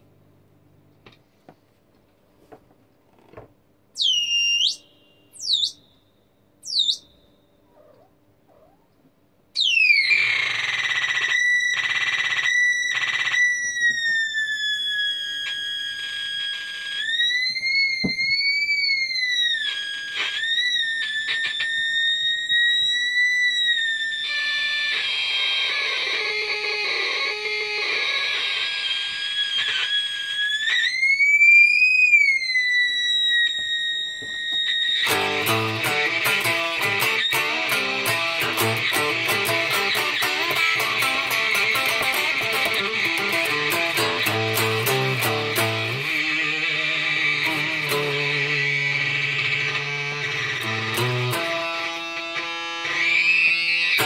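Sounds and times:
electronic oscillator tone: 0:33.0 - 0:54.0.

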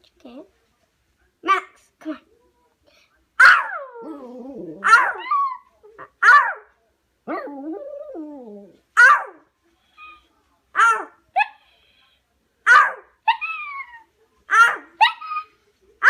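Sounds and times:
dog barking: 0:03.4 - 0:03.9, 0:04.8 - 0:05.3, 0:06.2 - 0:06.7, 0:09.0 - 0:09.4, 0:10.8 - 0:11.6, 0:12.7 - 0:13.4, 0:14.5 - 0:15.3.

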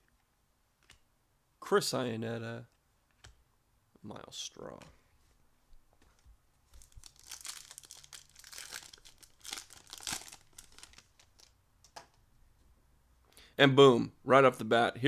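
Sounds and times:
foil wrapper crinkling and tearing: 0:06.8 - 0:11.5.

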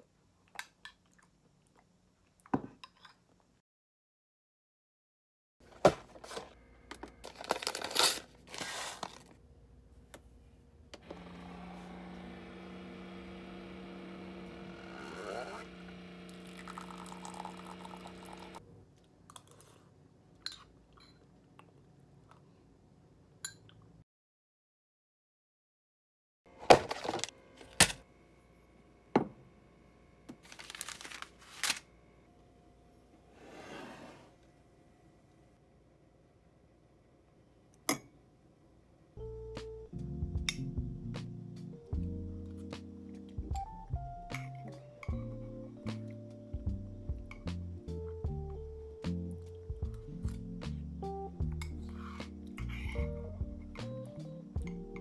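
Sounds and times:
paper packet tearing and crinkling: 0:07.3 - 0:09.4, 0:30.4 - 0:31.9
coffee brewer pump humming: 0:11.0 - 0:18.6.

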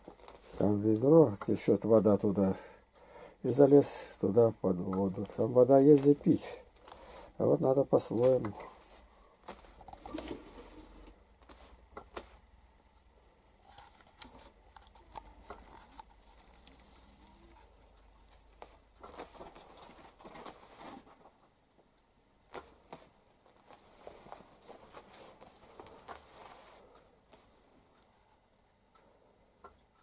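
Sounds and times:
rustling among cloth: 0:00.0 - 0:01.7, 0:03.5 - 0:12.5, 0:22.5 - 0:27.6.

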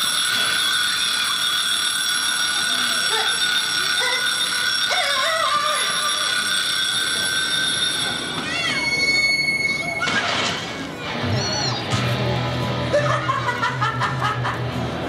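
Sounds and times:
high-pitched timer alarm ring: 0:00.0 - 0:10.0
faint voices: 0:00.0 - 0:13.7.

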